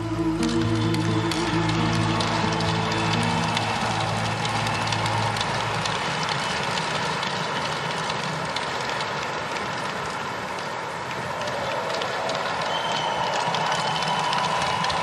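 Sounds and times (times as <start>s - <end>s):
music with low sustained notes: 0.0s - 6.6s
crowd applauding: 0.0s - 15.0s.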